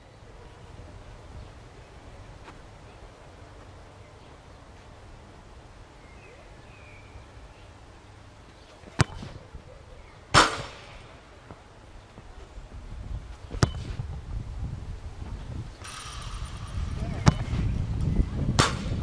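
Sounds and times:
ball hitting object with rattle: 0:08.8 - 0:09.5, 0:13.5 - 0:14.0, 0:15.8 - 0:19.0
boot kicking football: 0:08.8 - 0:09.5, 0:13.4 - 0:14.0, 0:16.9 - 0:17.7.

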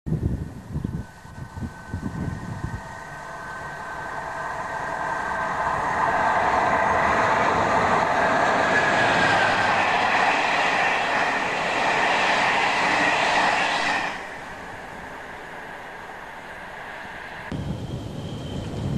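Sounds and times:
train wheels rushing on rail: 0:00.3 - 0:18.9.

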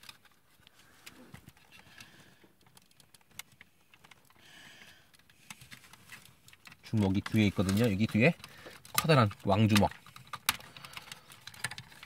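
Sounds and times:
plastic toy parts clicking: 0:05.0 - 0:12.0.

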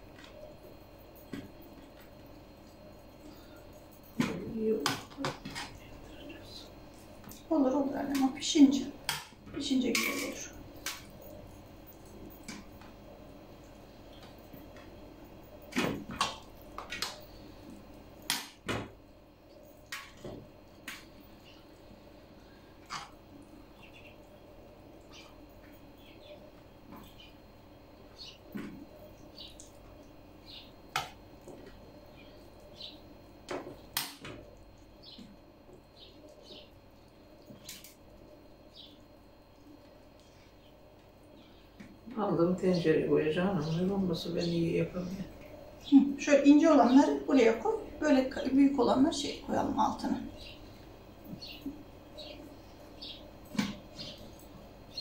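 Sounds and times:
metal spoons clinking and scraping: 0:09.9 - 0:10.5.

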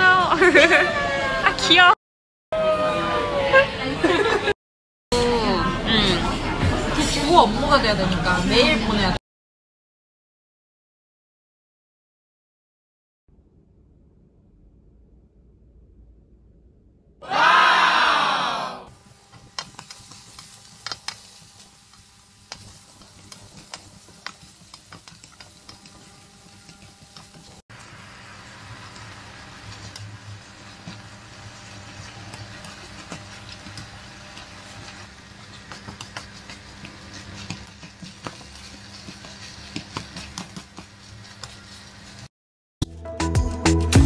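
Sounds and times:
vegetables sizzling in frying pan: 0:19.0 - 0:42.3
spatula scraping pan: 0:34.8 - 0:42.3.

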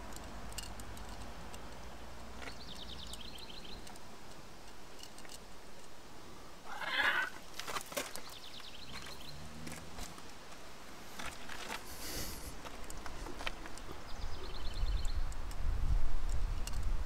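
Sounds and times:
light clicks of parts: 0:00.0 - 0:06.1, 0:07.4 - 0:14.2, 0:14.9 - 0:17.0
bird trill: 0:02.5 - 0:03.9
hands rustling: 0:09.9 - 0:13.9.

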